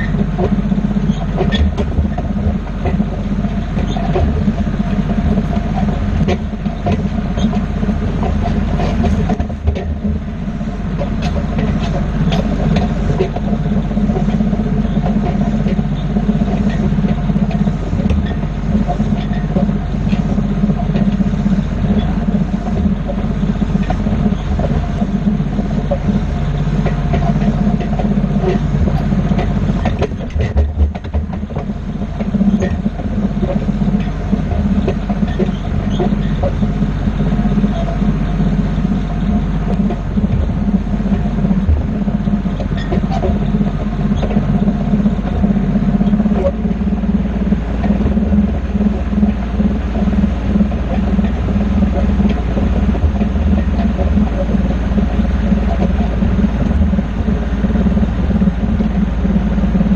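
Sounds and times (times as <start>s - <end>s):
tractor engine running: 0.0s - 59.9s
wagon rattling and clanking: 0.0s - 59.9s.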